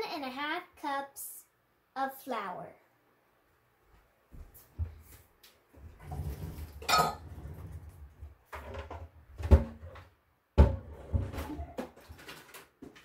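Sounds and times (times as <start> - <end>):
utensils and dishes clattering: 6.2 - 7.8.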